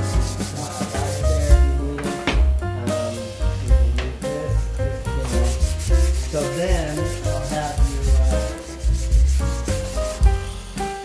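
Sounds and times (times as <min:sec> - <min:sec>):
sandpaper rubbing on wood: 0:00.0 - 0:01.6, 0:04.4 - 0:10.5
background music with beat: 0:00.0 - 0:11.0.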